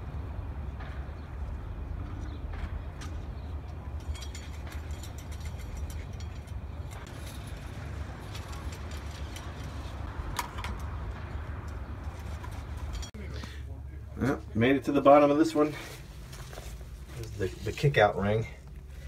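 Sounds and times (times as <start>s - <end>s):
rope and pulley clicking and rattling: 4.0s - 13.1s.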